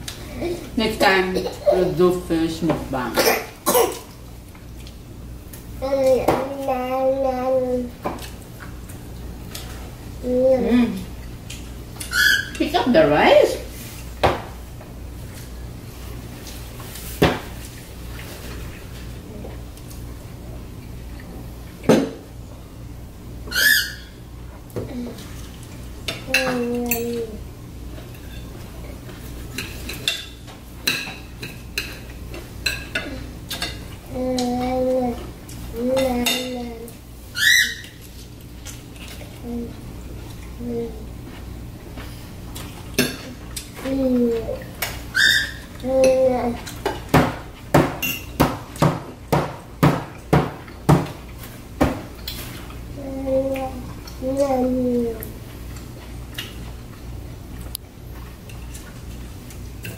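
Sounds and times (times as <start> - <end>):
knocking on dining table: 47.1 - 51.2.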